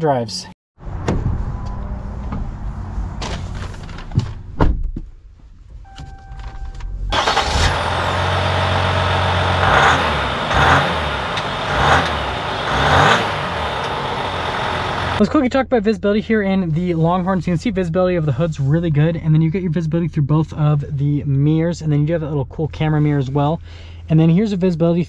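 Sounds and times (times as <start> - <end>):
diesel engine running: 7.1 - 15.2.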